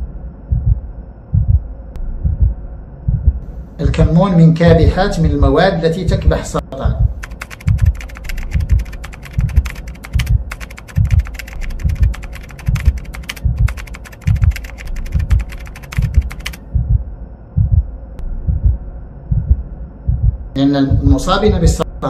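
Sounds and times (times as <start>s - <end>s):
low heartbeat-like throb: 0.0s - 4.1s, 4.7s - 21.8s
keyboard typing clicks: 7.2s - 16.6s.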